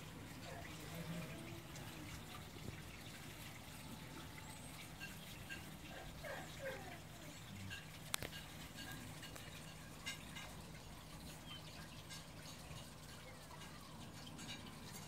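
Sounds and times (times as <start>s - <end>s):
puppies yelping: 5.5s - 7.3s.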